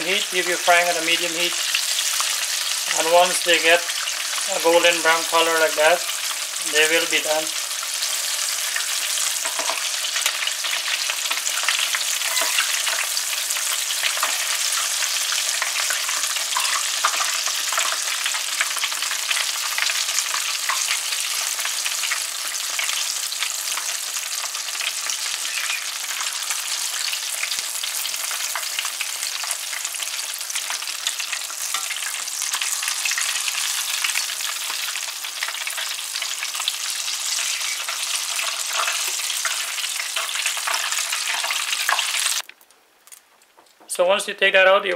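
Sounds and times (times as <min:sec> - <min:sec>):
chicken deep-frying in oil: 0:00.0 - 0:42.5.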